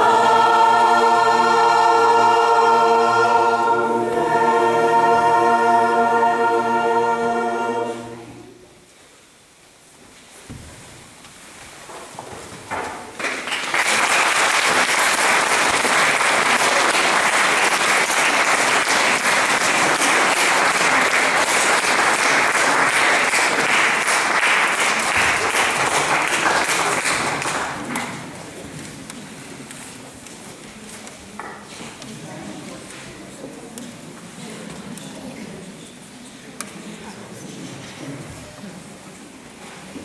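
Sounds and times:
audience applause: 13.2s - 28.3s.

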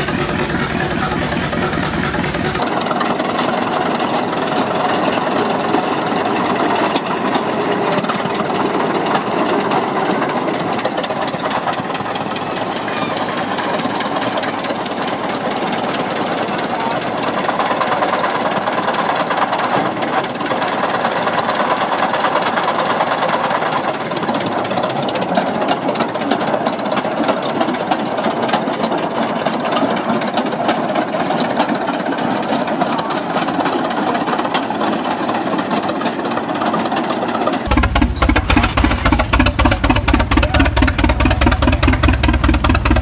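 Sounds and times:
engine mechanical clatter: 0.0s - 43.0s.

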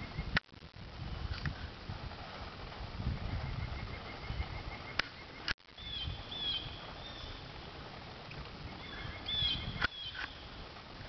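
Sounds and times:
birds whistling: 3.4s - 7.4s, 8.7s - 10.5s.

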